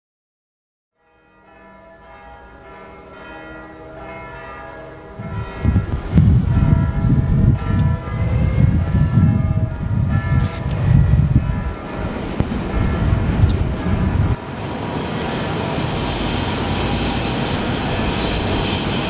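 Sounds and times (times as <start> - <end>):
bells ringing: 1.0 - 19.0
gusting low rumble: 5.1 - 18.6.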